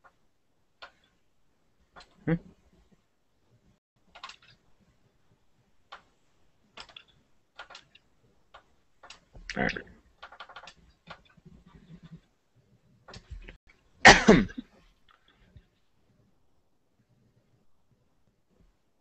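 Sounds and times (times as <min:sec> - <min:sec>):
computer mouse clicking: 0:00.8 - 0:01.2, 0:04.1 - 0:04.6, 0:05.9 - 0:12.2.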